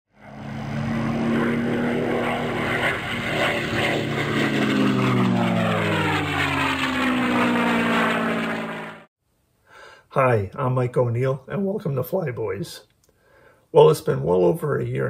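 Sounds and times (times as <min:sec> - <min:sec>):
propeller airplane engine droning: 0:00.1 - 0:09.1.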